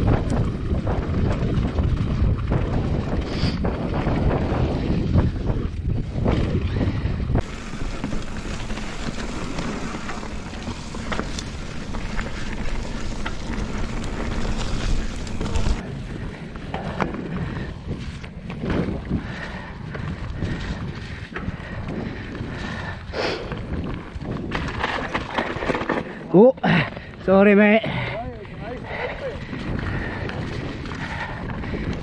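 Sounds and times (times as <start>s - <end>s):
wind buffeting microphone: 0.0s - 26.2s, 26.8s - 32.0s
bike rattling clicks and knocks: 0.0s - 27.2s.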